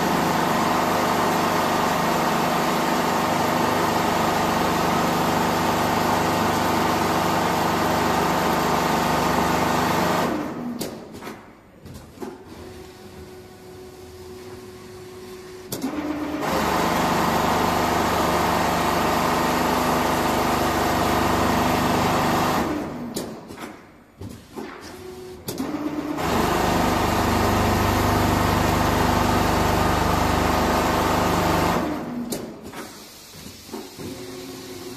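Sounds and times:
sewing machine humming: 0:00.0 - 0:10.5, 0:12.5 - 0:22.9, 0:25.6 - 0:32.2.

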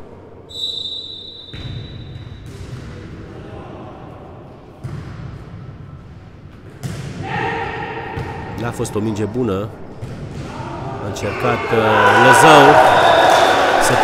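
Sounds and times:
referee's whistle blast: 0:00.5 - 0:02.2.

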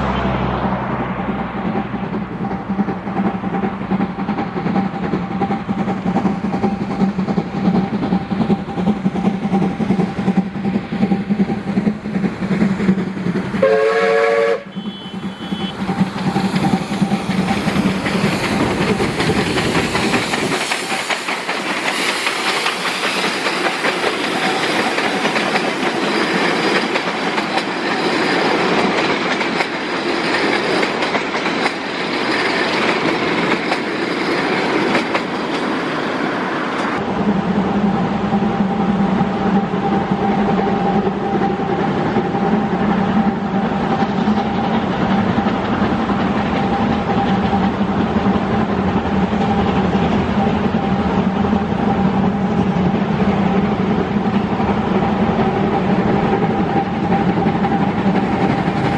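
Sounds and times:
steam locomotive running: 0:00.0 - 0:58.9
train coaches rolling on rails: 0:00.0 - 0:58.9
steam whistle blast: 0:13.6 - 0:15.8.

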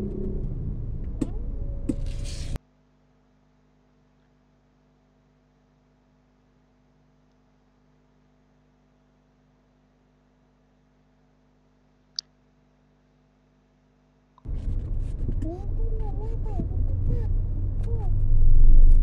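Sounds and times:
traffic rumble inside car: 0:00.0 - 0:02.6, 0:14.4 - 0:19.0
faint steady hum: 0:00.0 - 0:19.0.

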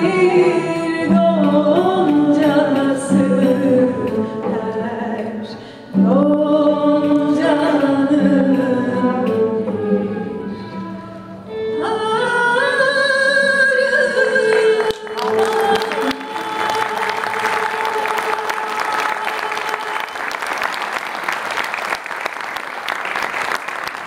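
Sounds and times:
woman singing with vibrato: 0:00.0 - 0:20.5
choir and ensemble: 0:14.6 - 0:21.6
audience applause: 0:14.8 - 0:24.0.

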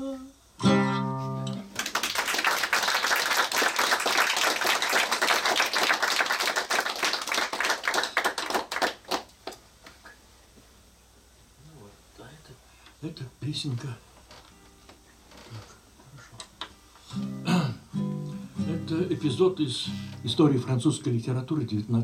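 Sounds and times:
guitar chord: 0:00.6 - 0:01.7, 0:17.1 - 0:20.7
audience applauding: 0:01.7 - 0:09.6.

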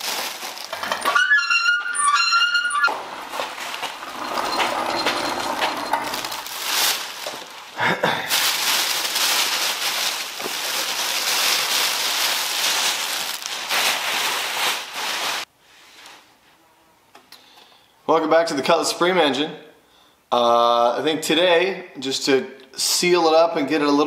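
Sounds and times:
plastic bags crinkling: 0:00.0 - 0:01.2, 0:02.9 - 0:15.5.

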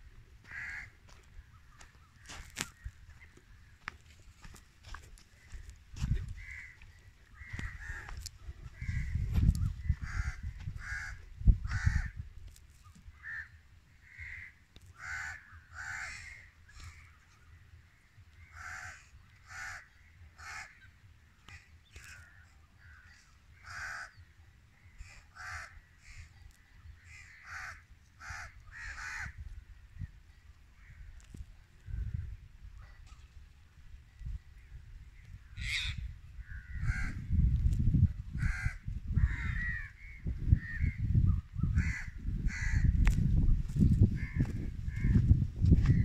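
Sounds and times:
crows cawing: 0:00.4 - 0:12.2, 0:13.1 - 0:17.4, 0:18.0 - 0:29.5, 0:35.4 - 0:37.4, 0:38.3 - 0:41.0, 0:41.7 - 0:43.2, 0:44.1 - 0:46.0
low rumble on microphone: 0:34.1 - 0:46.0.

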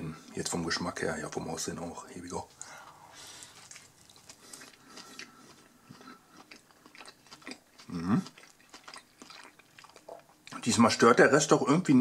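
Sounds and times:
man chewing: 0:02.6 - 0:10.6.

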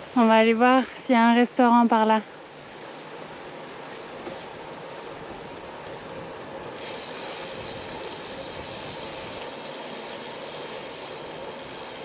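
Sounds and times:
fountain water splashing: 0:06.8 - 0:12.0.

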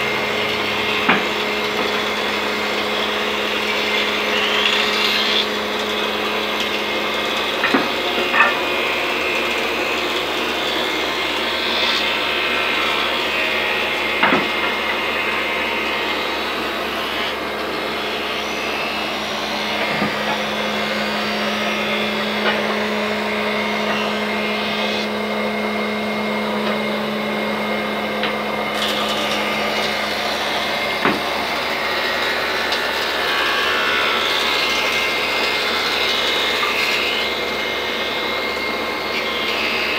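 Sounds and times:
thickness planer humming: 0:00.0 - 0:39.9.

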